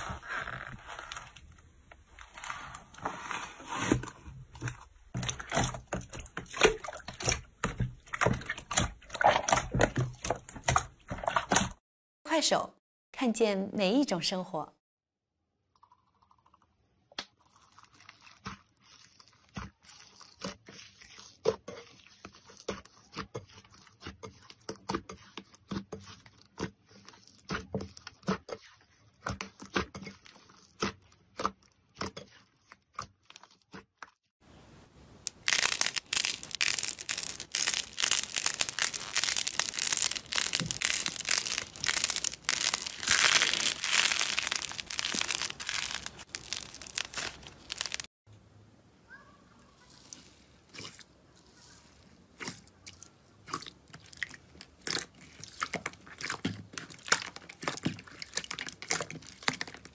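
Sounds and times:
slime crackling when squeezed: 35.3 - 48.1.

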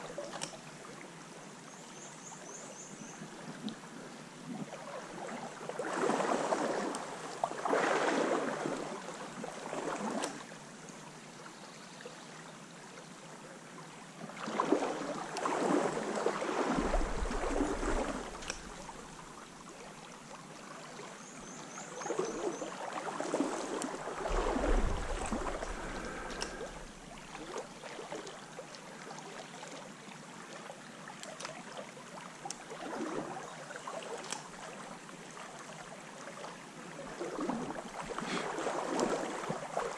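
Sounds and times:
stream flowing: 0.0 - 39.9
water splashing from wading: 4.6 - 10.7, 14.3 - 21.2, 21.9 - 39.9.

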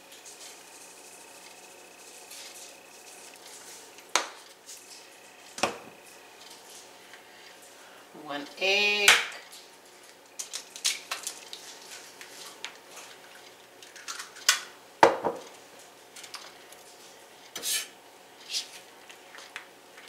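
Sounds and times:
egg cracking: 9.1 - 14.8
knife scraping on cutting mat: 17.6 - 18.8.

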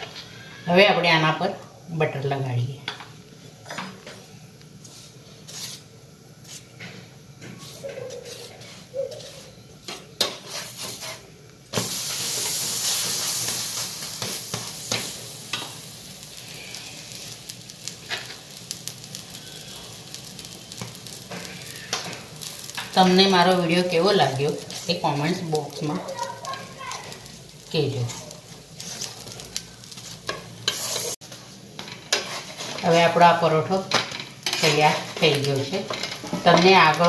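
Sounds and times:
spatula scraping and tapping pan: 6.4 - 15.8, 20.7 - 23.0, 29.9 - 33.1, 33.8 - 37.0
butter sizzling in a pan: 7.2 - 37.0.

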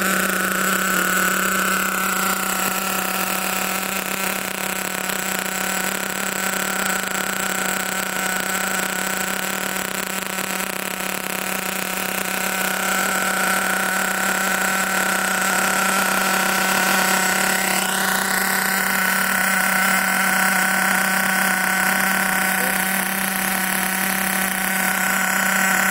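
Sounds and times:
small nitro engine running: 0.0 - 25.9.

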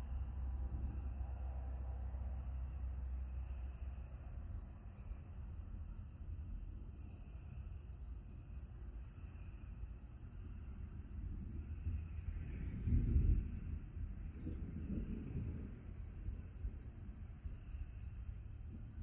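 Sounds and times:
low storm rumble: 0.0 - 3.7, 10.3 - 19.0.

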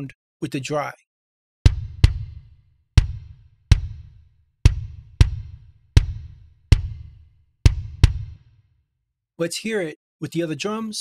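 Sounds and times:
kick drum hits: 1.7 - 8.5.

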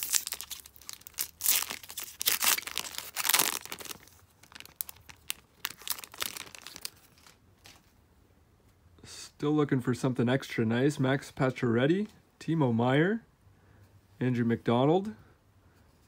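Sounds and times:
foil wrapper tearing and crinkling: 0.0 - 7.8.

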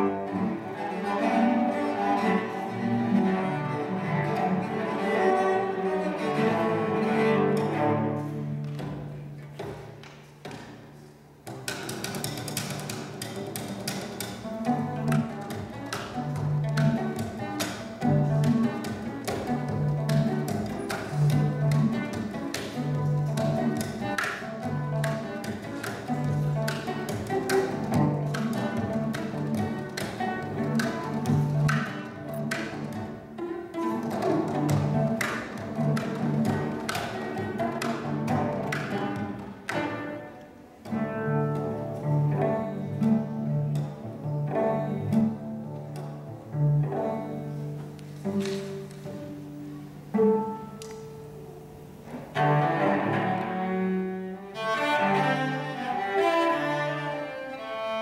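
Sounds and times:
cello duet: 0.0 - 58.0.

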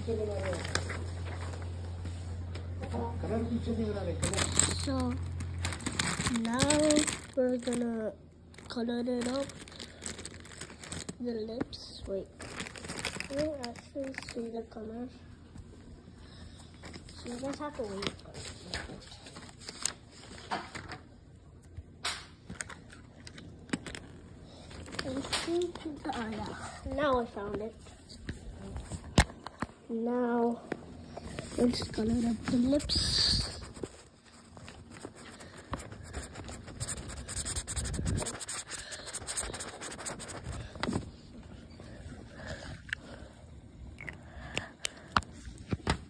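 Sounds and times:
plastic pens clicking and rattling: 4.2 - 7.8, 34.8 - 40.6
coloured pencil scribbling on paper: 34.7 - 40.7.

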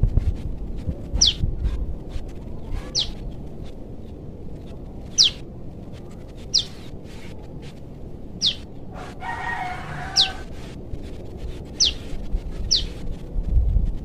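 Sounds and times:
young bird calling: 1.2 - 1.4, 2.6 - 3.4, 5.0 - 5.4, 6.3 - 6.9, 8.3 - 10.7, 11.6 - 13.0
rooster crowing: 8.4 - 10.6.

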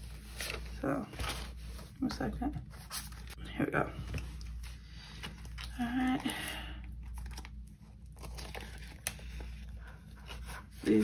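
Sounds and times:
paper banknotes rustling: 7.1 - 11.0.

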